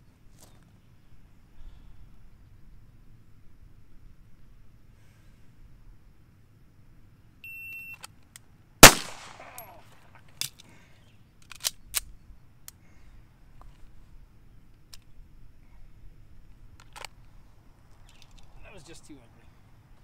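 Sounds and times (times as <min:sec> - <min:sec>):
pistol metallic clicks: 0:08.0 - 0:10.6, 0:11.4 - 0:12.2
pistol shot with echo: 0:08.8 - 0:09.8.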